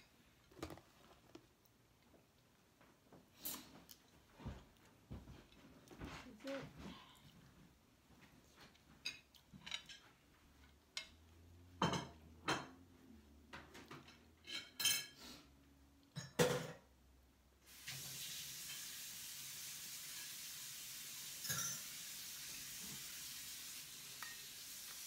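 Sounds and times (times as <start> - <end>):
utensils clinking on plate: 9.0 - 10.1, 14.0 - 15.2, 21.4 - 22.0.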